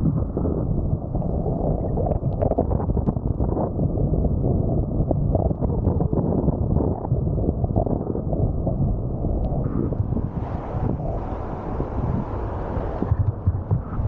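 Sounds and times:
wind buffeting microphone: 0.0 - 14.0
rushing water: 9.6 - 14.0.

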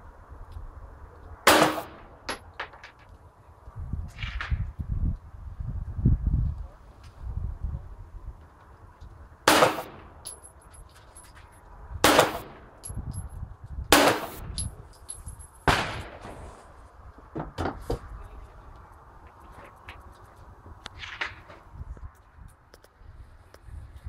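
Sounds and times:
pistol shots with echo: 1.5 - 2.0, 9.5 - 10.1, 12.0 - 12.6, 13.9 - 14.5.

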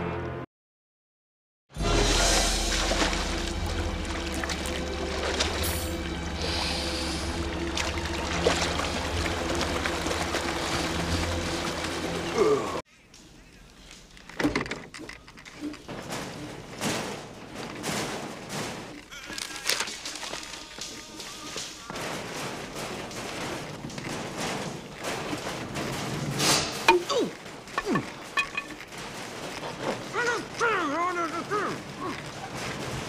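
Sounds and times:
rope rustling: 13.1 - 33.0
knocks and rattles on metal shelving: 14.4 - 19.1, 21.2 - 33.0.

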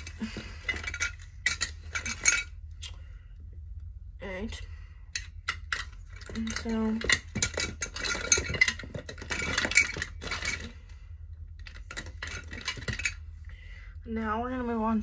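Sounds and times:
plastic makeup containers clattering: 0.0 - 2.5, 5.6 - 10.7, 11.6 - 13.2.

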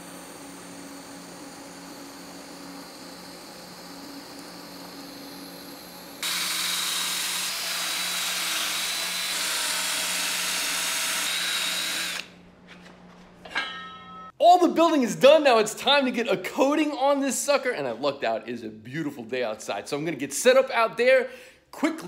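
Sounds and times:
welding hum: 0.0 - 12.5
drill grinding steel tube: 2.2 - 12.3.

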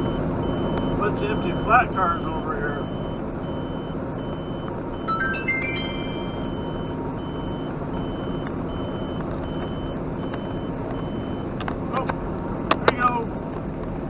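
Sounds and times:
truck engine and road noise: 0.0 - 14.0
high electronic beep: 1.0 - 11.4
rising chime tones: 5.1 - 7.0.

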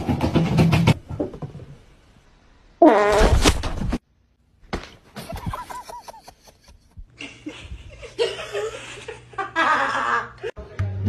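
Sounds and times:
people laughing: 5.2 - 10.6.

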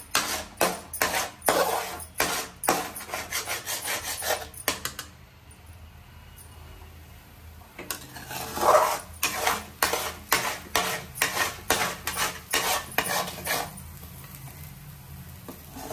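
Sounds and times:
metal spoon scraping a pan: 0.0 - 5.1, 7.8 - 13.8, 15.6 - 15.9.

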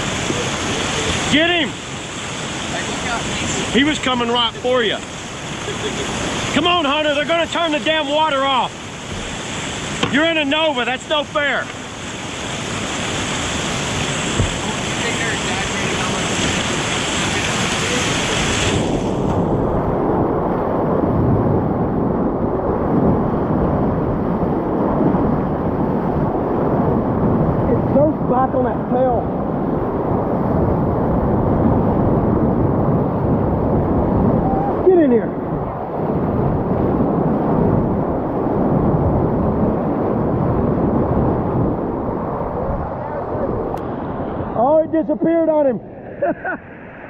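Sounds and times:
whitewater rapids rushing: 0.0 - 19.3
muffled churning water rumble: 0.0 - 47.0.

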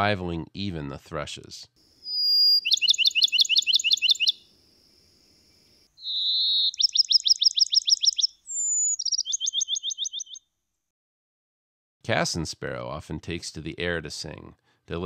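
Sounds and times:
sparrow whistling and trilling: 2.0 - 4.5, 6.0 - 10.4.

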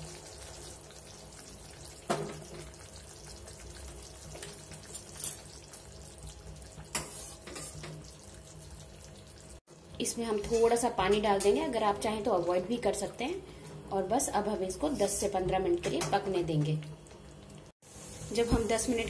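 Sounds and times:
curry bubbling at a boil: 0.0 - 9.7.

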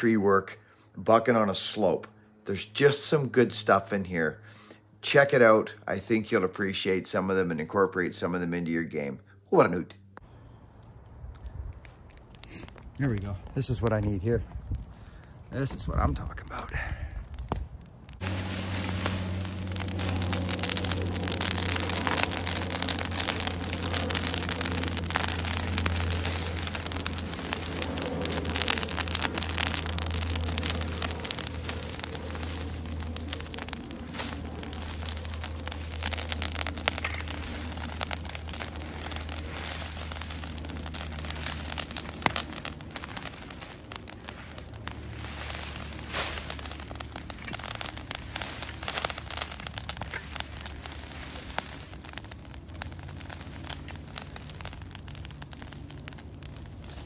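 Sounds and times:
branches burning and crackling: 0.0 - 57.0
steady low hum: 16.6 - 57.0
rain-like hiss: 18.2 - 57.0.

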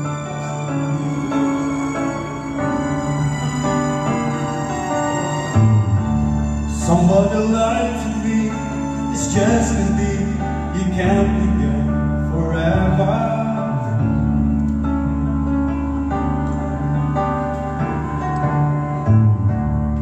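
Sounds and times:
instrumental backing track: 0.0 - 20.0
man singing into microphone: 6.7 - 14.2.

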